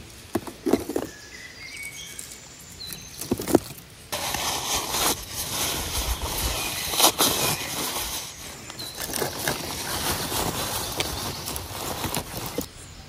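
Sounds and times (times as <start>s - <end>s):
dry grass and sticks crackling: 0.0s - 12.8s
paper tissue crinkling: 3.4s - 12.7s.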